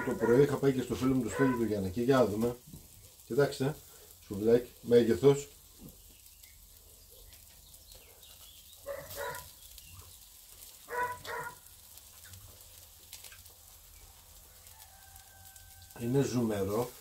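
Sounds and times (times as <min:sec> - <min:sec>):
dog barking: 0:00.0 - 0:00.5, 0:01.3 - 0:01.7, 0:08.8 - 0:09.5, 0:10.9 - 0:11.6.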